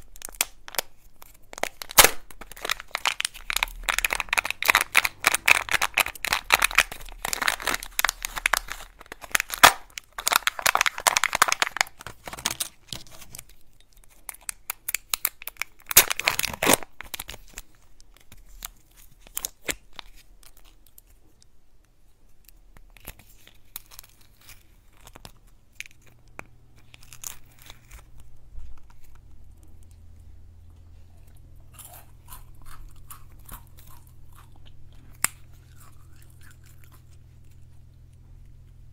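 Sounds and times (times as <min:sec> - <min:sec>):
foil and paper crinkling: 0:00.0 - 0:20.8.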